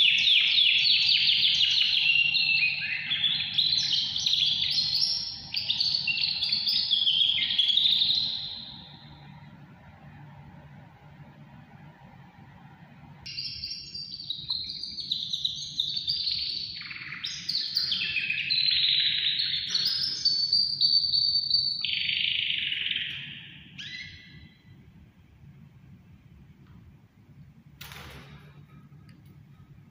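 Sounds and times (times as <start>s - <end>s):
canary singing trills: 0.0s - 9.4s, 13.3s - 24.8s.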